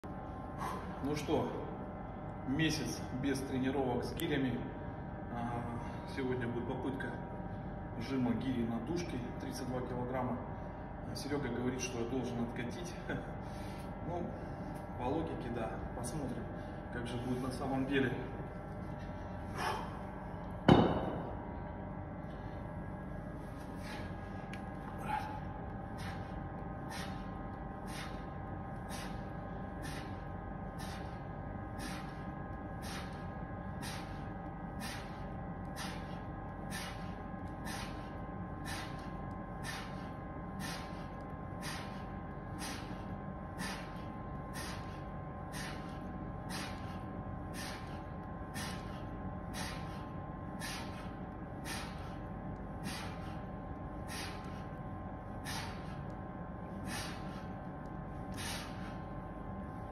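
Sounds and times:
faint steady hum: 0.0 - 59.9
man breathing hard: 0.4 - 1.0, 13.4 - 14.8, 18.8 - 20.6, 22.2 - 59.3.

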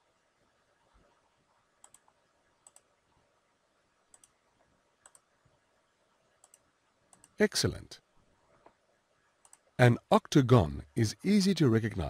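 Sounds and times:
faint computer mouse clicks: 1.8 - 2.9, 4.1 - 4.4, 5.0 - 5.3, 6.4 - 7.4, 9.4 - 9.7.

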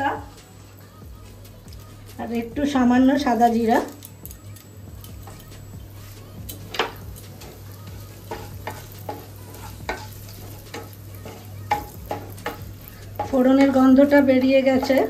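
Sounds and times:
spices sizzling in hot oil: 0.0 - 15.0
spatula scraping and tapping a pan: 5.0 - 15.0.

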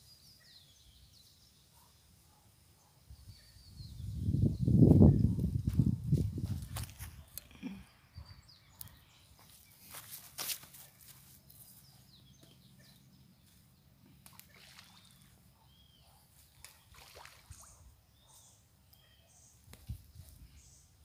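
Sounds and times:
faint bird chirps: 10.8 - 21.0
distant splashes in water: 14.1 - 15.6, 16.5 - 17.9.

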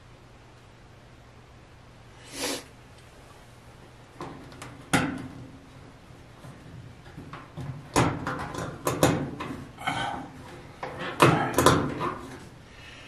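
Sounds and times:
metallic clanks on sheet metal: 4.2 - 5.6, 6.4 - 12.5.

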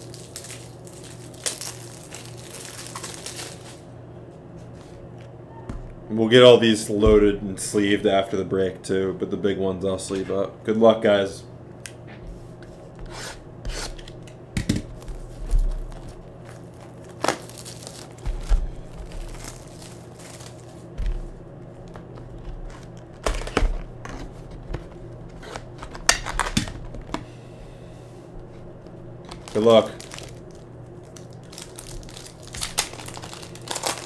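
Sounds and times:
plastic wrap crinkling: 0.0 - 3.9, 14.9 - 27.1, 29.2 - 34.0.

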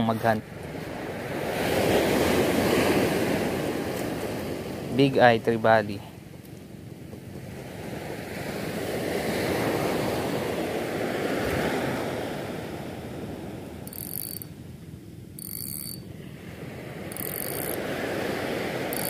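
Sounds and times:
surf on a pebble beach: 0.0 - 6.0, 7.4 - 14.5, 15.8 - 19.0
fishing reel whirring: 13.8 - 14.5, 15.4 - 16.0, 17.1 - 17.8.

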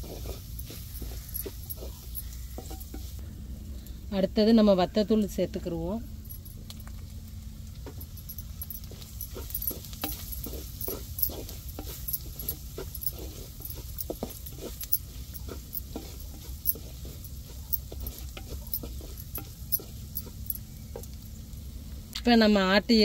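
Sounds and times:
wooden spatula scraping a pan: 0.0 - 3.2, 9.0 - 21.1
steady low rumble: 0.0 - 22.2.

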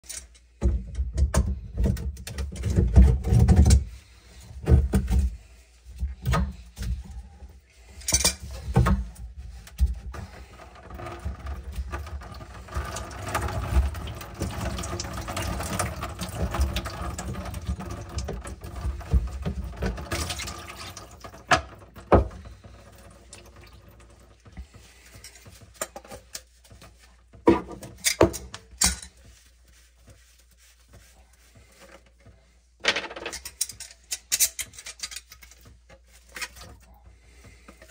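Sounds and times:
plastic parts knocking: 32.8 - 35.7.

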